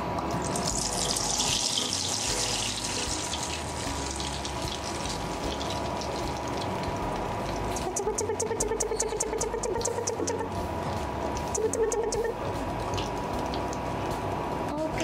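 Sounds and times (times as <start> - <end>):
batter sizzling in hot oil: 0.2 - 7.9
fast even ticking: 7.7 - 10.5, 11.4 - 12.4.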